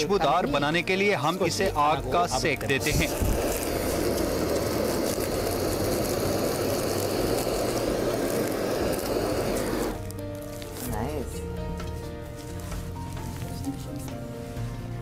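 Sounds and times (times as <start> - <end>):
gas torch flame rushing: 2.4 - 11.0.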